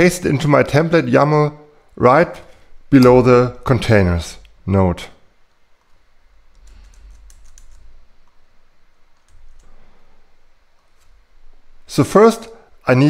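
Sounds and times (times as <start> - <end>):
keyboard keys clicking: 6.5 - 7.9.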